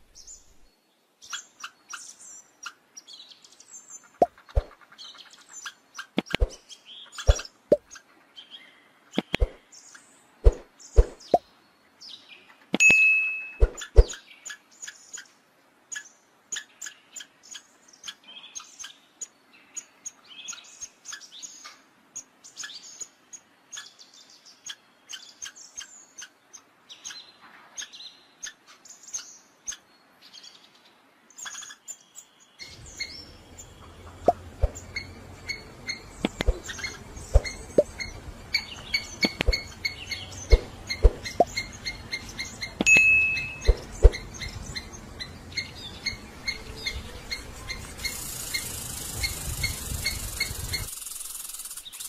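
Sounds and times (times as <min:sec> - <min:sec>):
animal chirps and ticks: 0:05.6 - 0:06.6, 0:07.2 - 0:08.0, 0:09.2 - 0:09.6, 0:12.7 - 0:15.3, 0:32.7 - 0:52.0.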